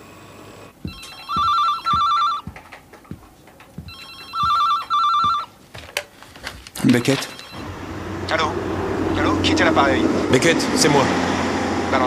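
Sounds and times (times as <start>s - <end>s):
desk telephone ringing: 0.9s - 2.8s, 3.8s - 5.6s, 6.9s - 7.7s.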